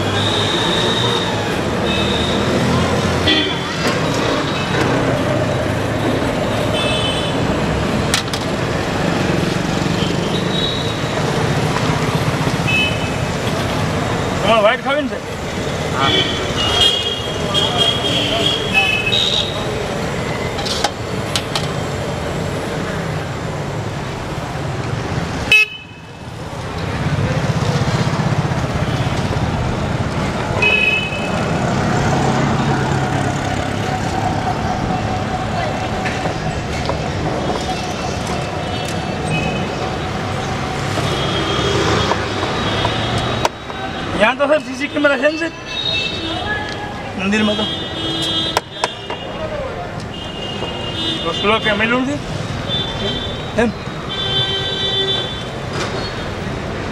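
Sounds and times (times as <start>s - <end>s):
street traffic passing: 0.0s - 56.9s.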